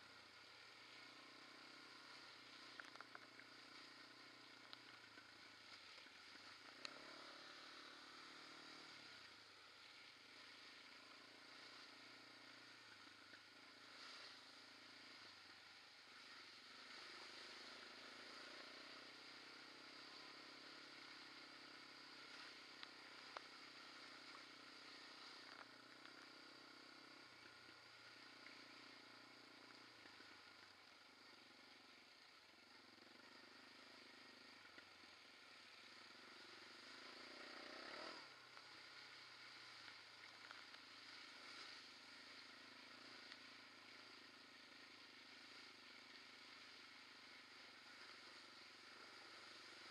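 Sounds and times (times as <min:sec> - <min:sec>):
quad bike engine revving: 0:00.8 - 0:09.3, 0:16.4 - 0:27.3, 0:36.0 - 0:38.4
small clicks and rattles: 0:02.6 - 0:03.4.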